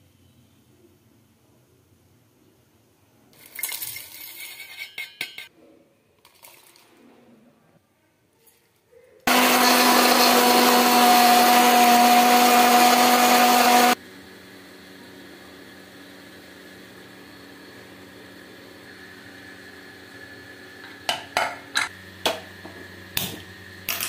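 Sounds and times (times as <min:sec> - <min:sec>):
electric mixer grinder running: 0:09.3 - 0:21.1.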